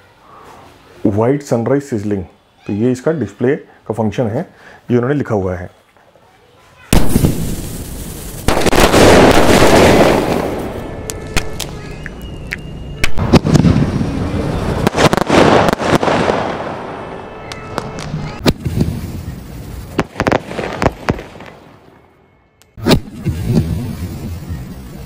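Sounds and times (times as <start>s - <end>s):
fireworks bangs: 6.9s - 22.0s, 22.7s - 25.0s
fireworks crackling: 6.9s - 22.0s, 22.7s - 25.0s.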